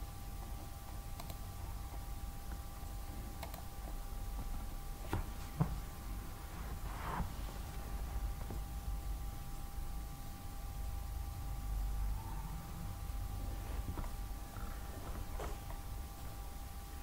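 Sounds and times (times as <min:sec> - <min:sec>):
low electrical hum: 0:00.0 - 0:17.0
computer mouse clicks: 0:00.4 - 0:01.4, 0:03.4 - 0:04.0
faint high steady tone: 0:08.8 - 0:13.6.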